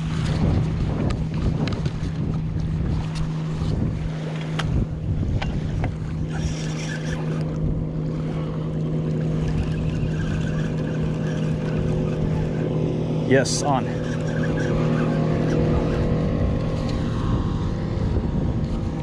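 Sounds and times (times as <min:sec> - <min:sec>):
motorboat engine passing: 0:00.0 - 0:19.0
wind on microphone: 0:00.0 - 0:19.0
fishing reel clicks: 0:06.3 - 0:07.6, 0:13.8 - 0:16.1.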